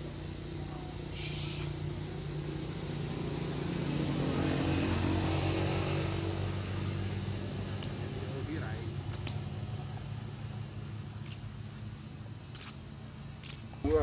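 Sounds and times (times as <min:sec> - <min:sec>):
vehicle engine running: 0:00.0 - 0:14.0
short high hiss: 0:01.1 - 0:01.8.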